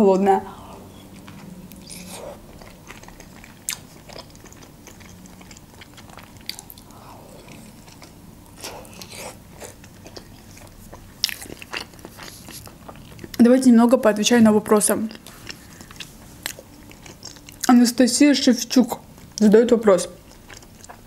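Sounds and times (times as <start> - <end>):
person chewing wet food: 0.5 - 13.4, 15.0 - 17.7, 20.2 - 21.0.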